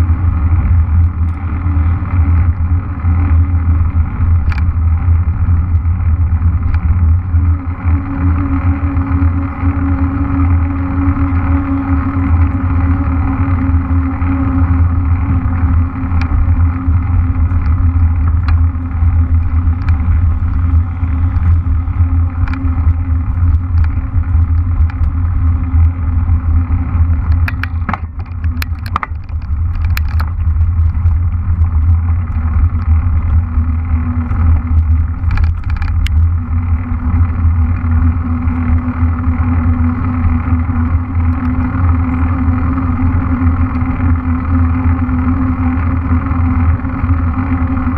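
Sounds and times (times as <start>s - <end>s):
tyres humming on asphalt: 0.0s - 47.9s
wind rumbling on microphone: 0.0s - 47.9s
bike clicks and knocks: 0.1s - 47.9s.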